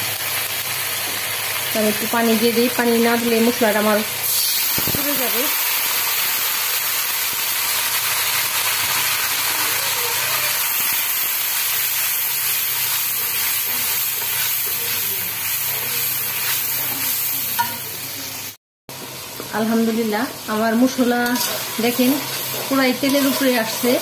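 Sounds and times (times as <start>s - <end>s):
spice paste sizzling in oil: 0.0s - 24.0s
spatula stirring in pan: 11.8s - 17.8s, 21.2s - 24.0s.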